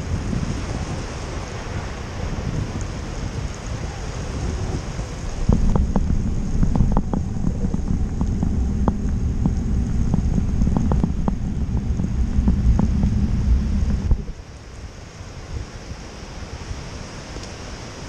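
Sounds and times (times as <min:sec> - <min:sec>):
wind buffeting microphone: 0:00.0 - 0:18.0
sharp ticks: 0:05.5 - 0:14.3.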